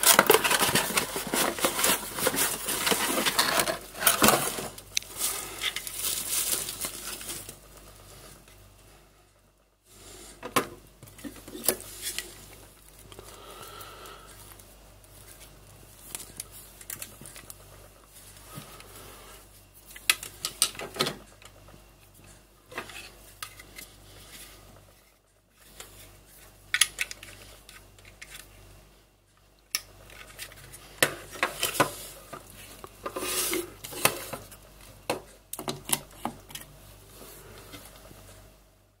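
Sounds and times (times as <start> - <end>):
plastic packaging crinkling: 0.0 - 7.7.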